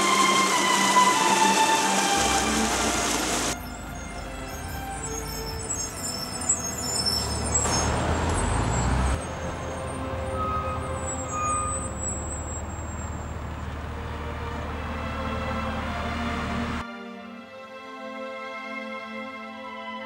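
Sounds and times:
bus driving past: 0.0s - 16.8s
traffic hum: 2.2s - 16.8s.

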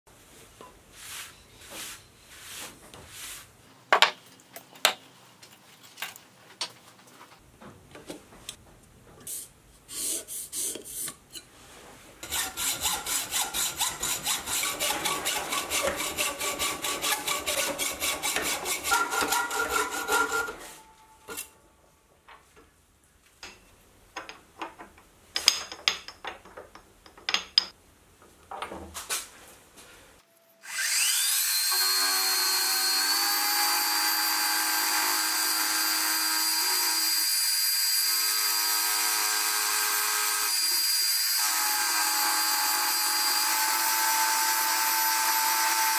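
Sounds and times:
hacksaw cutting metal: 12.2s - 21.5s, 30.6s - 45.9s
metal parts clicking and knocking: 24.2s - 27.7s.

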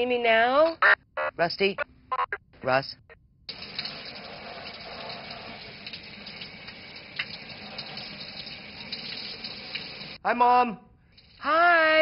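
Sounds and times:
shower water spraying: 3.5s - 10.2s.

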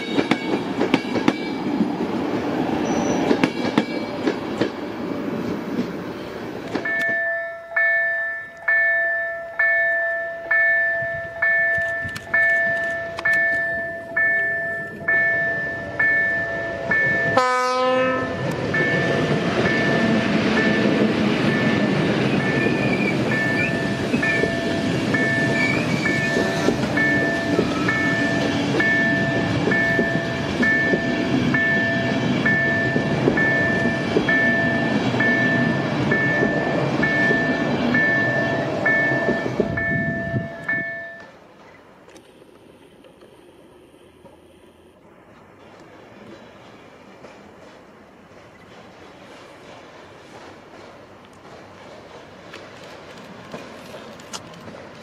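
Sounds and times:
train wheels rumbling on rail: 0.0s - 55.0s
intermittent high tone: 6.8s - 17.4s.

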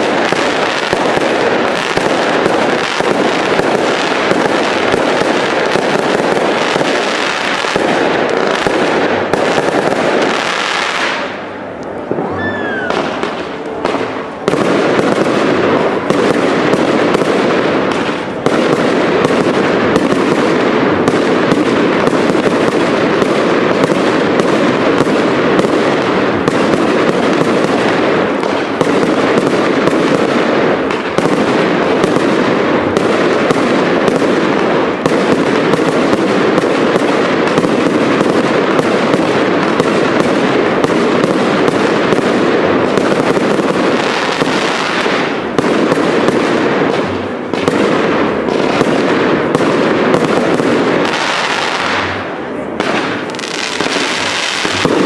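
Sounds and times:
crackling firework stars: 0.0s - 55.0s.

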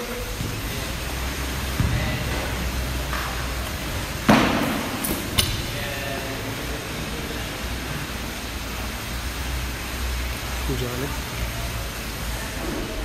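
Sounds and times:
heavy thud: 1.6s - 5.8s.

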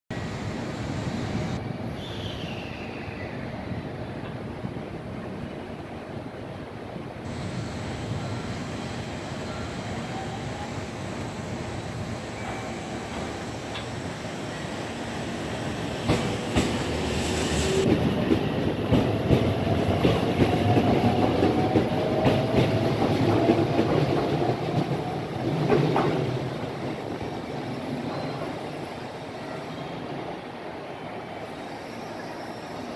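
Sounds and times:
train wheels clicking on rails: 7.3s - 28.8s.

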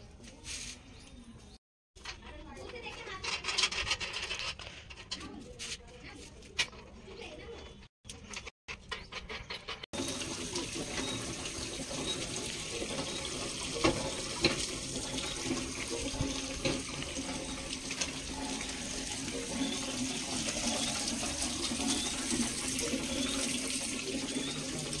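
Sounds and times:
hand pump clanks: 10.8s - 22.4s.

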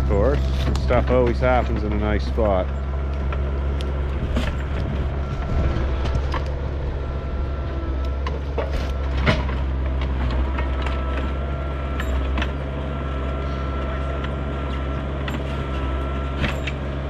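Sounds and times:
metal clanks and knocks: 0.0s - 6.7s, 8.1s - 12.7s
diesel engine running: 0.0s - 17.0s.

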